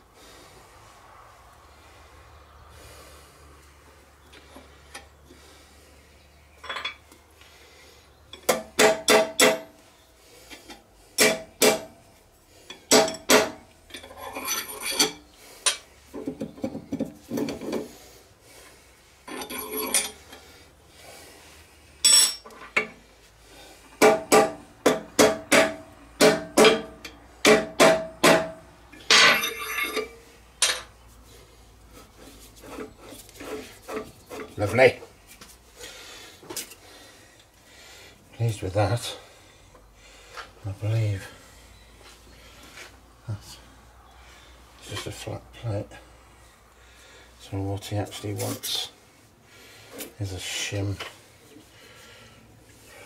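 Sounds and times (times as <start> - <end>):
metal scraping: 13.9 - 15.8, 19.2 - 20.4.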